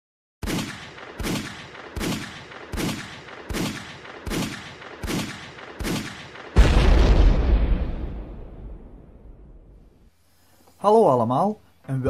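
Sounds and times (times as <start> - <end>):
heavy impact hits with boom: 6.6 - 9.7.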